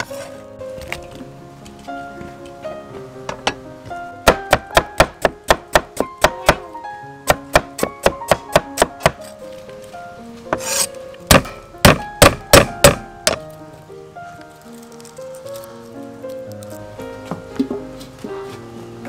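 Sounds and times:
cleaver chopping on wooden block: 4.2 - 6.6, 7.2 - 9.2, 10.5 - 13.4
cleaver scraping block: 10.5 - 11.0.

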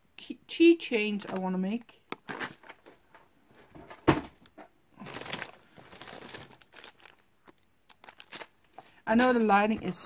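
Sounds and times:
plastic packaging rustling: 2.2 - 9.7.

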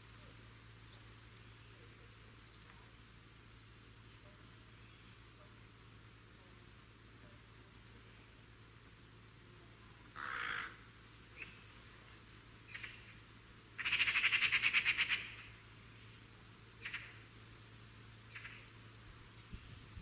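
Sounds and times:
bird calling: 10.2 - 11.7, 12.7 - 13.2, 13.8 - 15.6, 16.8 - 17.2, 18.2 - 18.7.

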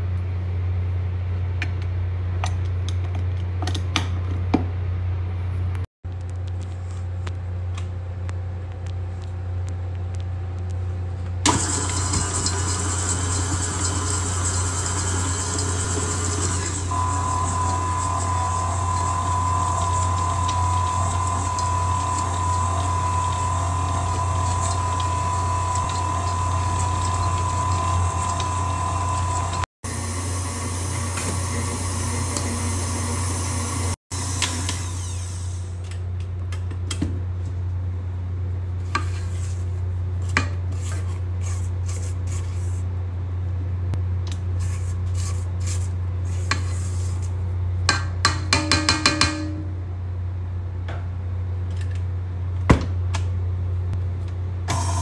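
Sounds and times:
stand mixer motor humming: 11.5 - 35.3.

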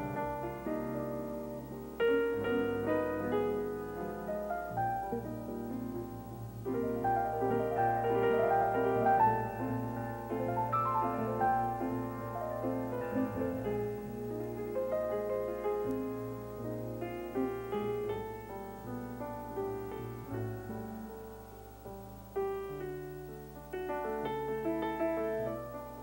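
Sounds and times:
jazz grand piano: 0.0 - 26.0.

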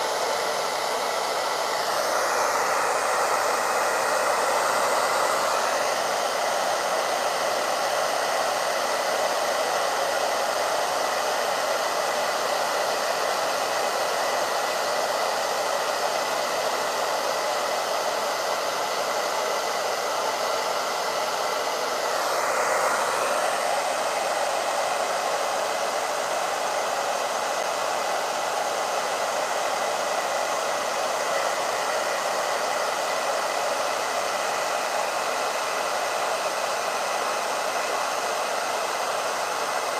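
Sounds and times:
hair dryer blowing: 0.0 - 39.9.

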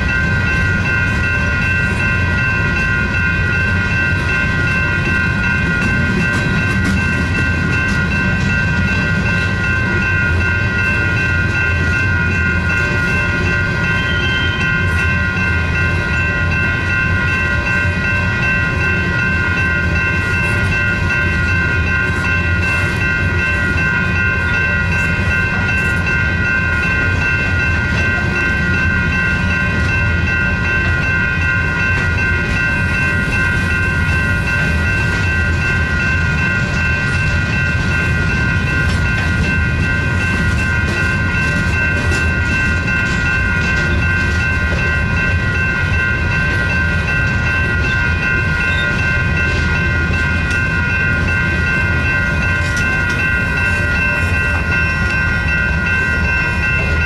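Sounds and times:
freight train rumble: 0.0 - 57.0
railroad crossing bells ringing: 0.0 - 57.0
train wheel clicks: 36.6 - 45.3, 46.3 - 57.0.

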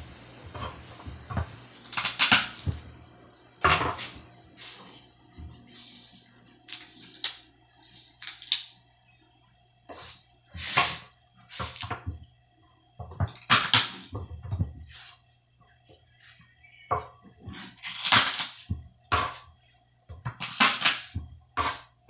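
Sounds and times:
knife cutting onions: 1.9 - 2.8, 20.4 - 22.0.

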